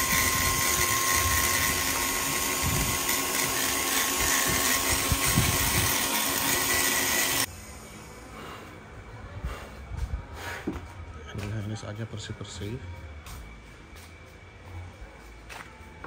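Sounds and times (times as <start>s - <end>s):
rotary grinder whining: 0.0s - 7.5s.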